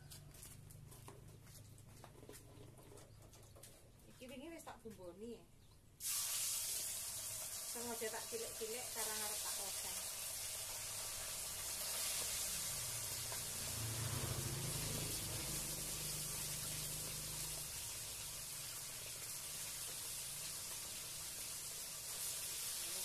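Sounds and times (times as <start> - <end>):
fish sizzling in hot oil: 6.0 - 23.0.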